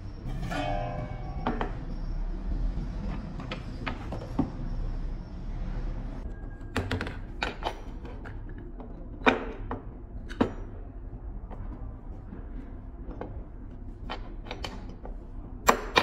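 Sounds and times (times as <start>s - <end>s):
metal box scraping and ringing: 0.1s - 2.2s
metal knocks: 0.1s - 4.7s.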